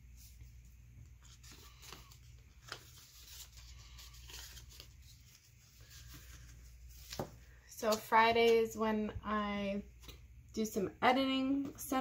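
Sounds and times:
paper rustling: 0.1s - 8.1s.

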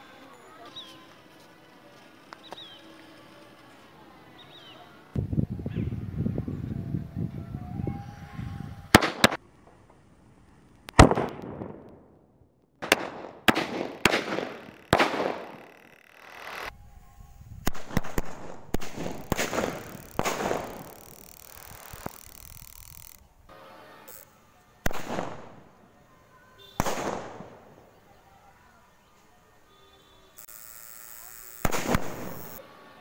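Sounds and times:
firework rockets cracking: 8.9s - 16.7s, 17.6s - 23.2s, 24.1s - 25.8s, 26.8s - 28.0s, 30.4s - 32.6s
firework rocket hiss: 13.5s - 22.6s, 30.4s - 32.6s.

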